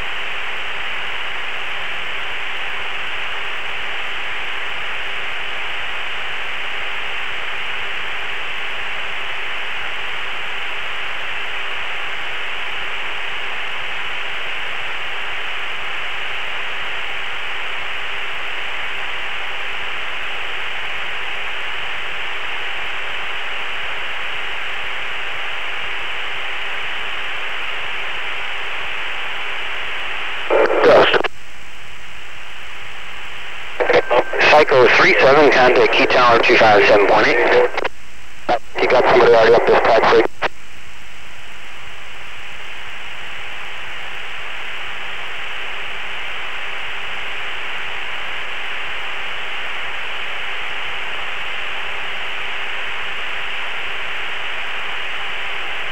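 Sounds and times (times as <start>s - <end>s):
radio static hiss: 0.0s - 55.9s
radio crackling burst: 29.4s - 31.4s, 32.3s - 40.7s.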